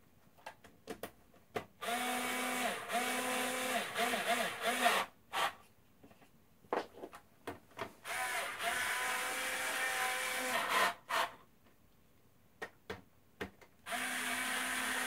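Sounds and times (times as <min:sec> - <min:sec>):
electric screwdriver running: 0:01.8 - 0:05.5, 0:08.1 - 0:11.3, 0:13.9 - 0:15.0.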